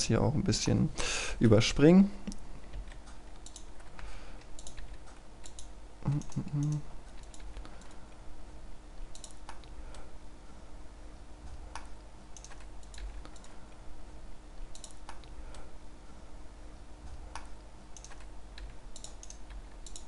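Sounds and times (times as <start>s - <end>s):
steady low background hum: 0.0s - 20.0s
keyboard and mouse clicking: 2.6s - 8.0s, 9.1s - 10.0s, 11.7s - 13.6s, 14.7s - 15.7s, 17.3s - 20.0s.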